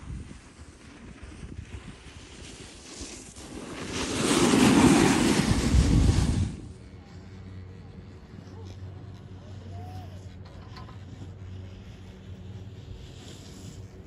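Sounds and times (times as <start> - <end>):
wind buffeting microphone: 0.0 - 2.8, 4.6 - 8.5
snowboard scraping packed snow: 0.0 - 6.8, 10.5 - 14.0.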